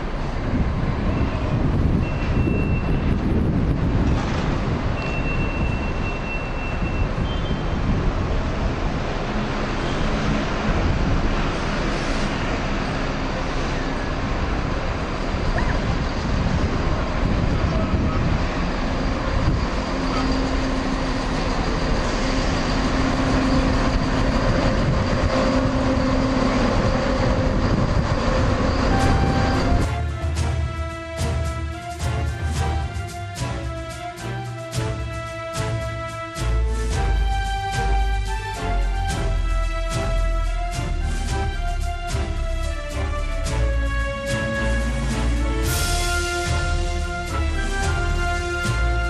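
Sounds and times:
diesel train rumbling: 0:00.0 - 0:49.0
train engines idling: 0:07.9 - 0:49.0.

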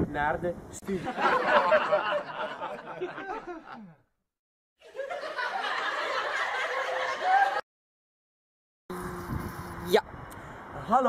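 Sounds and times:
people laughing: 0:00.9 - 0:04.0, 0:04.8 - 0:07.6.

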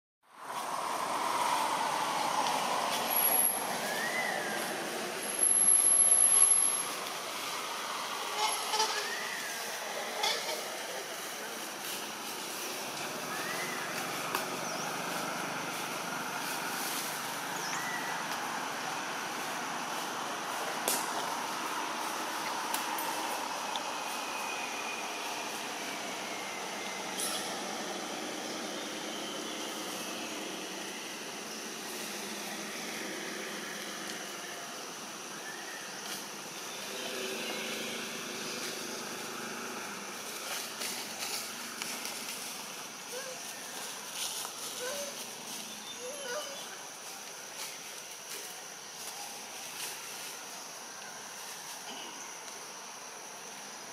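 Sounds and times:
faint high insect drone: 0:00.3 - 0:53.9
outdoor background hiss: 0:00.3 - 0:53.9
faint whistled notes: 0:03.4 - 0:04.7, 0:13.3 - 0:14.0.

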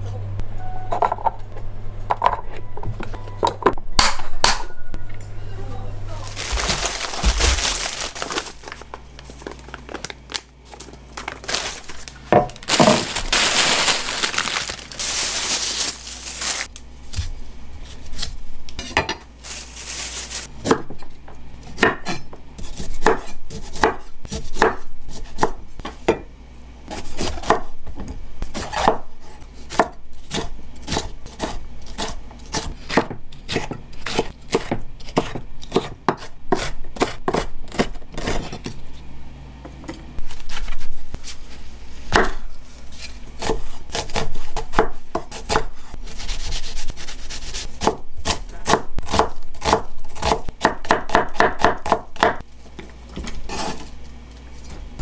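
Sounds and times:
rustling: 0:06.2 - 0:10.1, 0:10.7 - 0:16.7, 0:19.4 - 0:20.5
knife chopping on wooden board: 0:21.7 - 0:26.2, 0:47.8 - 0:52.4.

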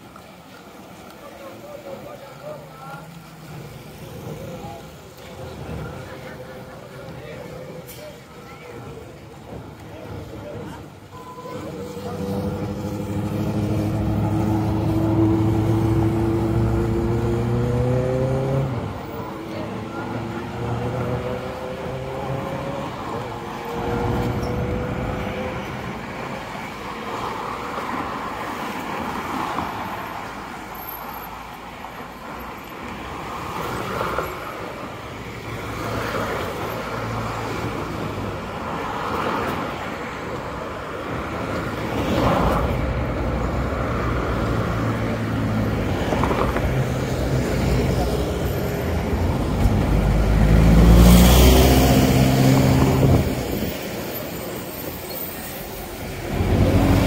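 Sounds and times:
cars going by: 0:00.0 - 0:57.0
people talking: 0:00.5 - 0:15.4, 0:19.0 - 0:27.3
vehicle engine passing close: 0:11.5 - 0:25.8, 0:44.2 - 0:54.3, 0:56.0 - 0:57.0.

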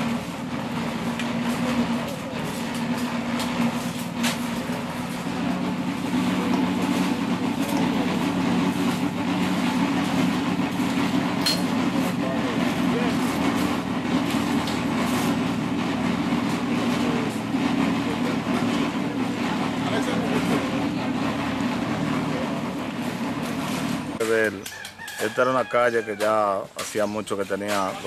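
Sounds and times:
low engine drone: 0:00.0 - 0:24.2.

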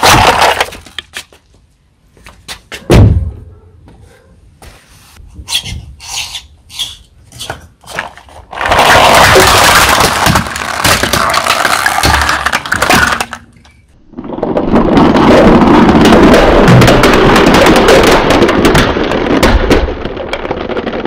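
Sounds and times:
plastic cracking and crunching: 0:00.0 - 0:01.1, 0:08.0 - 0:21.0.

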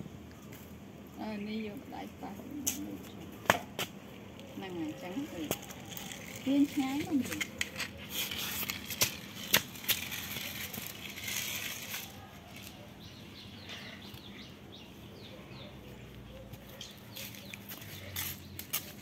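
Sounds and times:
toy wheels scraping on concrete: 0:04.6 - 0:12.8, 0:16.8 - 0:19.0.

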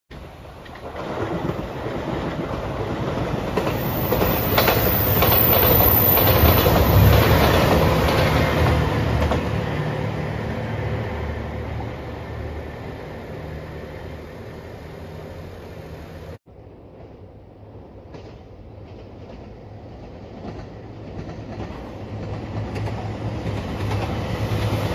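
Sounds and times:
train wheels clacking on rail joints: 0:00.6 - 0:09.7, 0:18.0 - 0:24.9
diesel train engines droning: 0:03.7 - 0:16.4.

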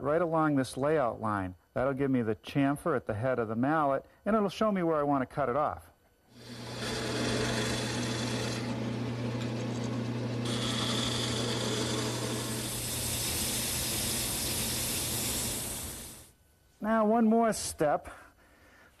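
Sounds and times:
chisel cutting hiss: 0:06.3 - 0:16.4
wood lathe humming: 0:06.4 - 0:16.3.

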